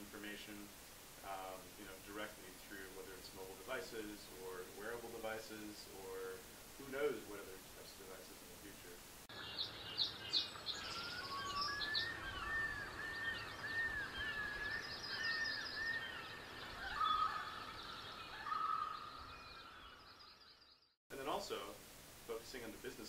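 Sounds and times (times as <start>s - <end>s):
birds chirping and calling: 9.3s - 20.8s
bird trills: 9.3s - 20.9s.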